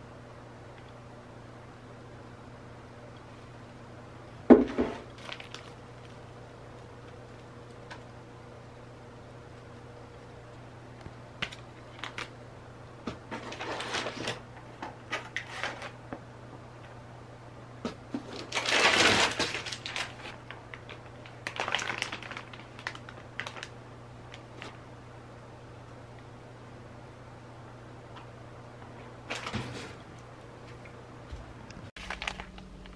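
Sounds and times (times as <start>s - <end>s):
faint steady hum: 0.0s - 32.9s
plastic packaging rustling: 4.6s - 6.3s, 11.4s - 12.3s, 13.3s - 16.0s, 18.1s - 24.8s, 29.2s - 29.9s, 32.0s - 32.9s.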